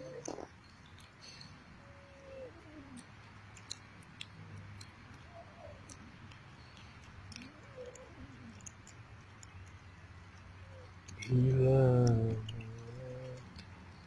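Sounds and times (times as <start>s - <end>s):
cats chewing and tearing: 0.0s - 14.0s.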